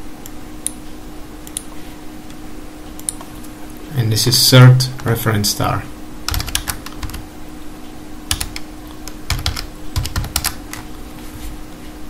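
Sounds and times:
faint steady hum: 0.0s - 12.0s
typing on computer keyboard: 6.3s - 7.2s, 8.3s - 10.9s.

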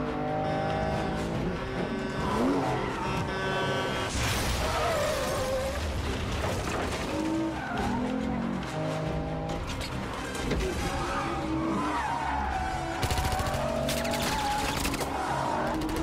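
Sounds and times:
sports car engines revving: 0.0s - 4.1s
tyres squealing and skidding: 0.0s - 16.0s.

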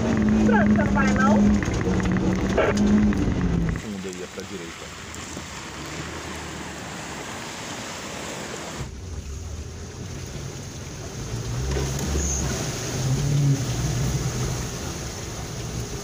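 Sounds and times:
vehicle engine running: 0.0s - 7.0s.

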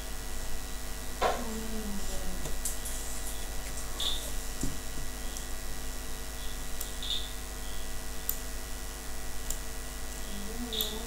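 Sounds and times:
electrical hum and hiss: 0.0s - 11.0s
computer mouse clicking: 9.4s - 9.6s.

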